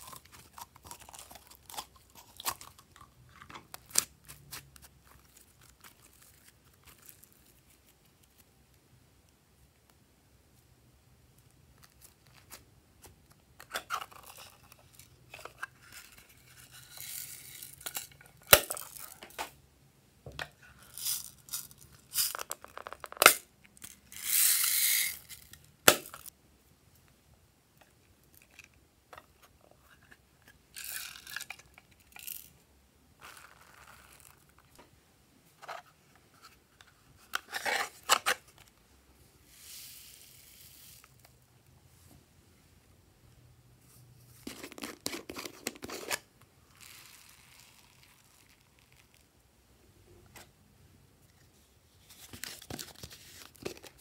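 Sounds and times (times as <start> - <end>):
sprinkles pouring: 46.8 - 49.2.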